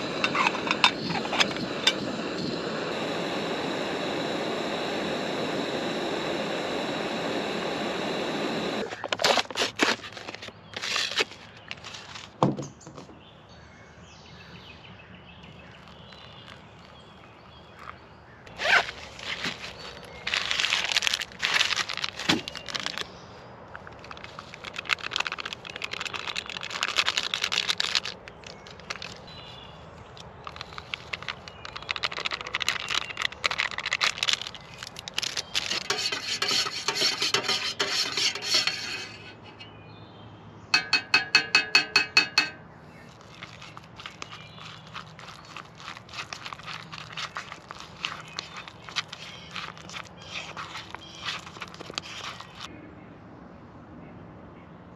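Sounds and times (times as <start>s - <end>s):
camp stove hissing: 0.0s - 9.5s, 32.0s - 39.6s
plastic packaging crinkling: 8.8s - 12.4s, 18.5s - 23.1s, 23.7s - 29.6s, 30.2s - 39.2s, 42.9s - 52.7s.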